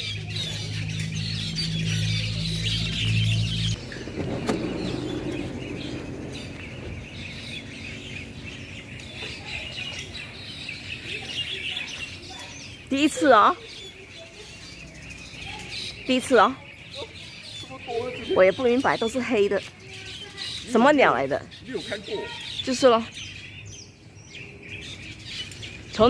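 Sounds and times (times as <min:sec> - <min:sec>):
flock of birds chirping: 0:00.0 - 0:26.0
low hum: 0:00.8 - 0:10.4.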